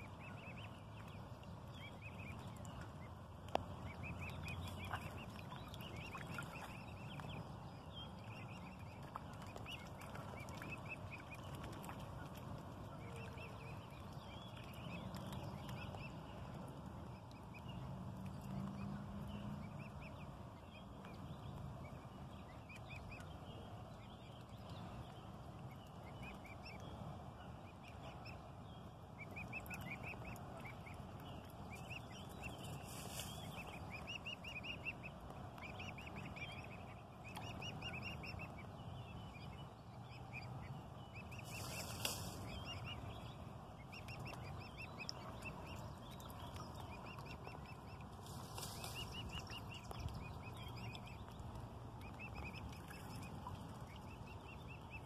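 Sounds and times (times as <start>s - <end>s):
cygnets peeping: 0.0s - 17.8s, 29.1s - 55.0s
low steady background noise: 0.0s - 55.0s.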